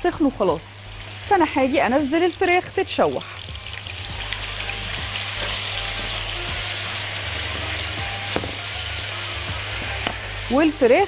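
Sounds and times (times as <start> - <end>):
chicken sizzling in oil: 0.0 - 11.0
spatula stirring in wok: 1.8 - 10.1.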